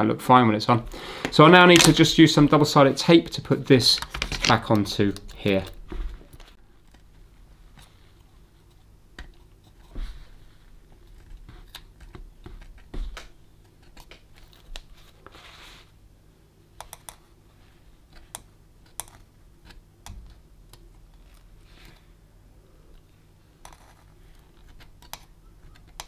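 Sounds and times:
scratchy tape rustle: 0:01.5 - 0:16.0.

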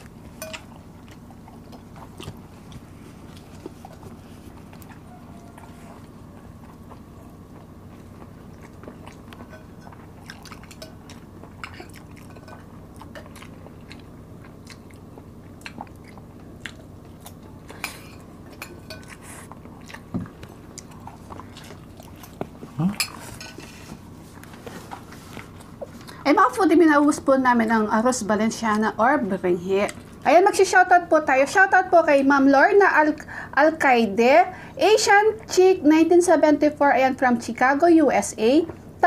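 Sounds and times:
chewing and mouth sounds: 0:00.0 - 0:26.3, 0:29.8 - 0:30.3
steady low hum: 0:00.0 - 0:39.0.

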